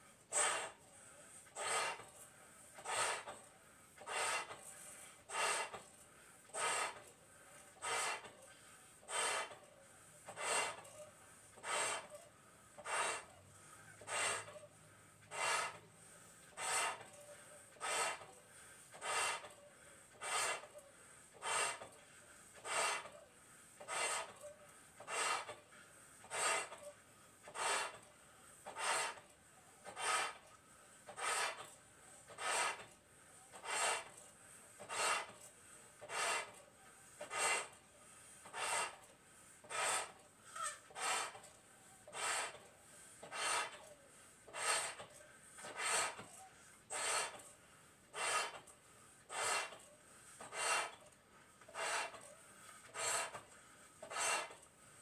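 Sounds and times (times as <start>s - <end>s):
person blowing up balloons: 0.3s - 2.2s, 2.8s - 5.9s, 6.5s - 7.1s, 7.8s - 8.4s, 9.0s - 9.6s, 10.3s - 10.9s, 11.6s - 12.2s, 12.8s - 13.4s, 14.0s - 14.5s, 15.2s - 15.8s, 16.4s - 17.2s, 17.8s - 23.1s, 23.8s - 24.4s, 25.0s - 26.8s, 27.4s - 30.5s, 31.1s - 34.2s, 34.8s - 36.6s, 37.2s - 37.8s, 38.4s - 41.5s, 42.1s - 43.9s, 44.5s - 47.5s, 48.1s - 48.7s, 49.3s - 49.8s, 50.4s - 51.1s, 51.7s - 52.2s, 52.8s - 54.6s.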